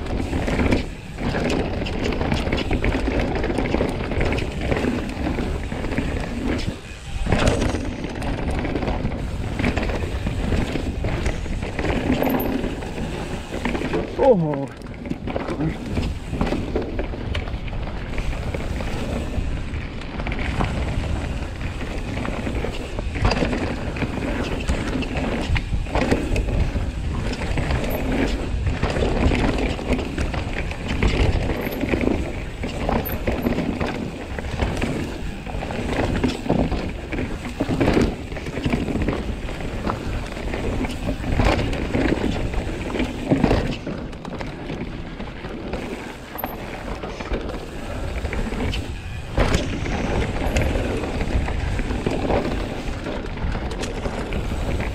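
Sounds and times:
bike tyres rolling over dirt: 0:00.0 - 0:54.9
chain and frame rattling: 0:12.0 - 0:13.0.

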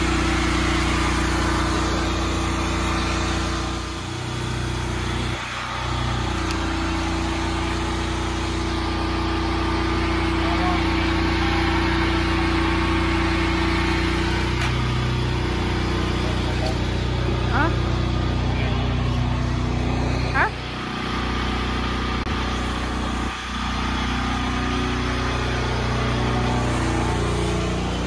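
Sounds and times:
engine humming: 0:00.0 - 0:28.0.

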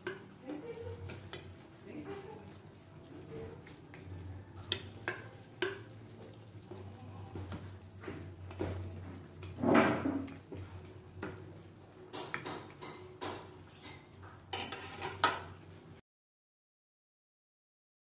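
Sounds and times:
spatula scraping in wok: 0:12.8 - 0:15.6.

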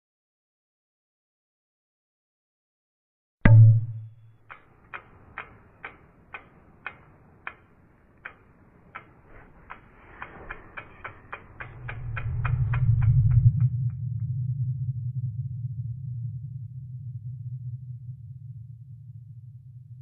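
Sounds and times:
loud low hit: 0:03.5 - 0:04.1
clock-like ticking: 0:03.5 - 0:13.7
low rumble: 0:10.1 - 0:20.0.

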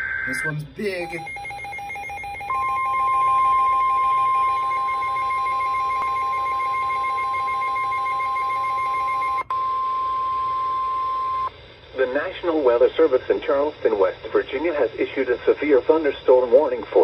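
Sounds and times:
pulsing two-pitch alarm beep: 0:00.0 - 0:11.5
steady warning alarm tone: 0:00.0 - 0:11.5.

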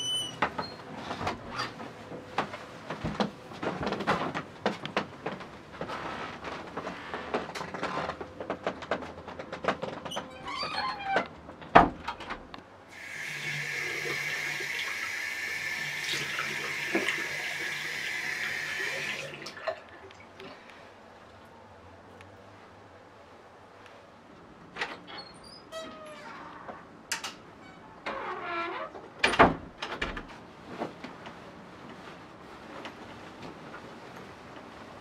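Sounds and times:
small knocks and rustles: 0:00.3 - 0:12.6, 0:29.0 - 0:35.0
tap water pouring into basin: 0:12.9 - 0:19.8.

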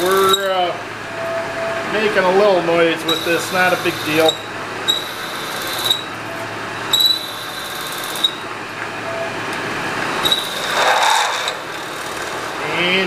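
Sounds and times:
milling machine cutting metal: 0:00.0 - 0:00.5, 0:03.0 - 0:06.3, 0:06.9 - 0:08.4, 0:10.2 - 0:12.8
high-pitched squeal: 0:03.0 - 0:08.4, 0:10.2 - 0:12.3.

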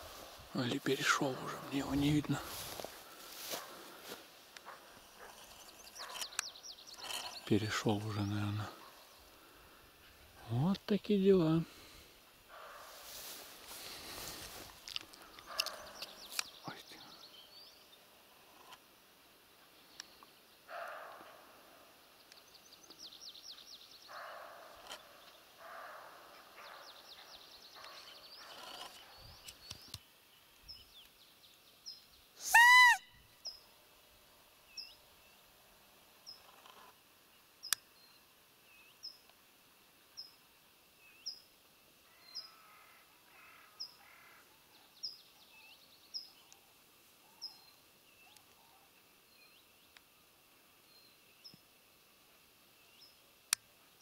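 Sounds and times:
birds twittering: 0:00.1 - 0:10.6, 0:13.8 - 0:18.0, 0:22.3 - 0:31.2
bird chirping: 0:04.6 - 0:09.5
deer call peep: 0:32.4 - 0:33.1.

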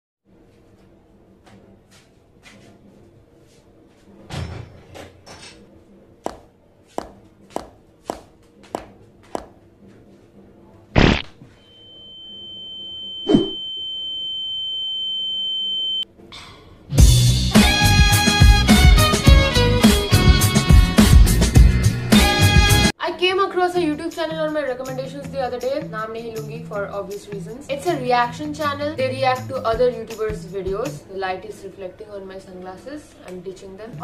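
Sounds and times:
footsteps on hard floor: 0:01.4 - 0:02.8
high-pitched tone: 0:11.7 - 0:15.4
loud music: 0:17.0 - 0:22.9.

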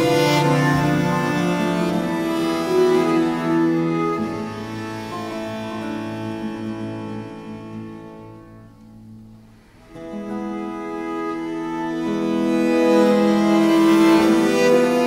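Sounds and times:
long low bowed note: 0:00.0 - 0:08.0
bowed viols and lute: 0:00.0 - 0:15.0.

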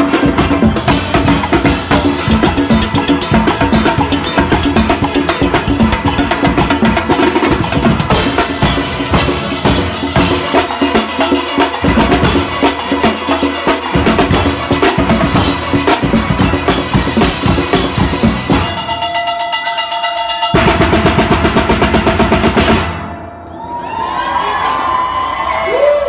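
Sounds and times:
drum kit and percussion rhythm: 0:00.0 - 0:24.1.

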